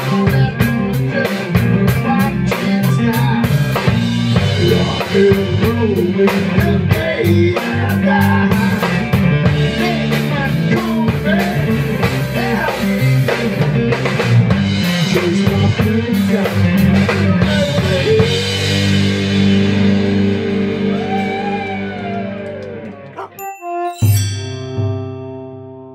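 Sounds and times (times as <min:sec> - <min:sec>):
live rock band playing: 0:00.0 - 0:25.6.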